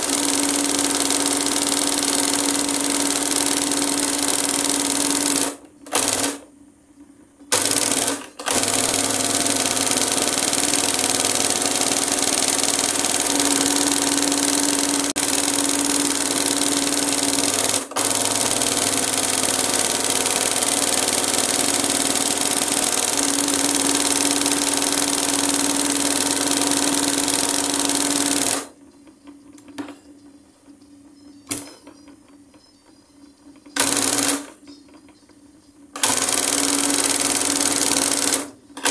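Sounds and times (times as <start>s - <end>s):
embroidery machine stitching: 0.0s - 6.5s, 7.5s - 28.7s, 33.8s - 34.5s, 36.0s - 38.9s.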